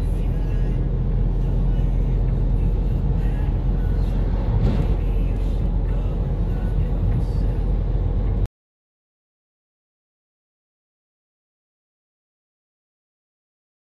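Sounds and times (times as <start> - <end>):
car cabin road and engine rumble: 0.0 - 8.5
truck passing whoosh: 2.0 - 8.5.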